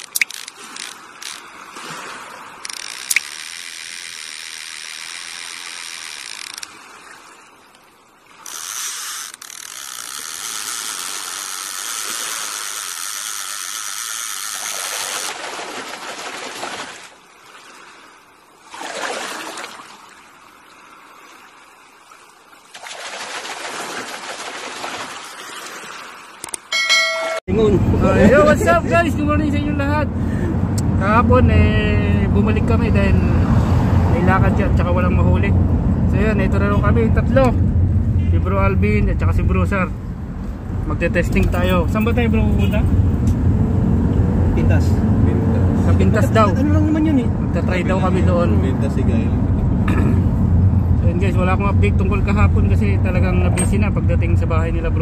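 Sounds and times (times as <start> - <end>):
fishing reel ratchet buzzing: 0.0 - 1.4, 2.6 - 6.7, 8.4 - 15.2.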